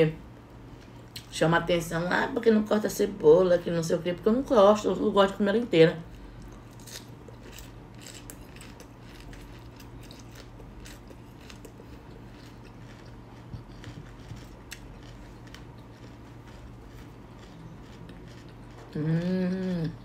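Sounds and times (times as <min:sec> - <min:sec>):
steady low hum: 0:00.0 - 0:20.0
crisp chewing crunches: 0:06.1 - 0:20.0.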